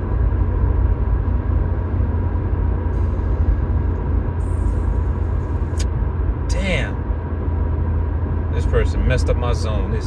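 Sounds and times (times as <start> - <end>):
car cabin road rumble: 0.0 - 10.0.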